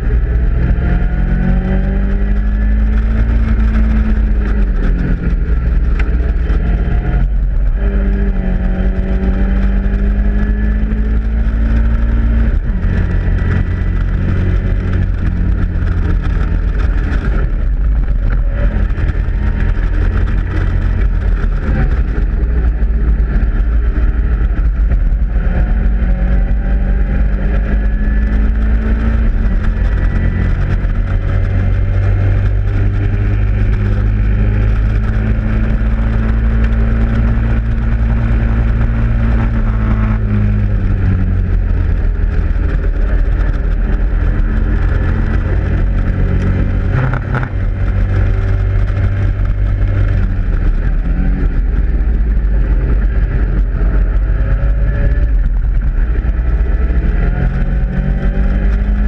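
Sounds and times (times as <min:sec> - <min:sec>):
race car engine revving: 0:00.0 - 0:59.0.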